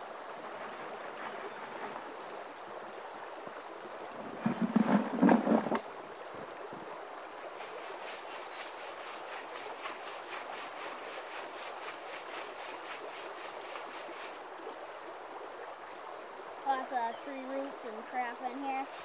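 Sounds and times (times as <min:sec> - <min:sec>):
gravel rattling on mesh screen: 0:04.3 - 0:05.8.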